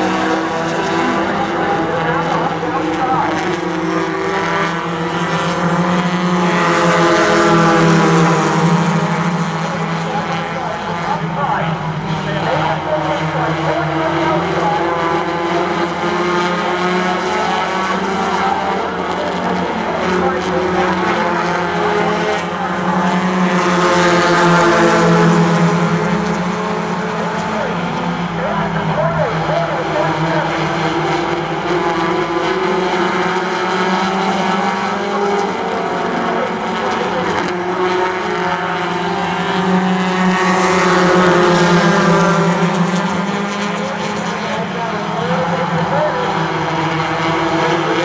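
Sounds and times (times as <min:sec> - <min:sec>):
race car engines at full throttle: 0:00.0 - 0:48.0.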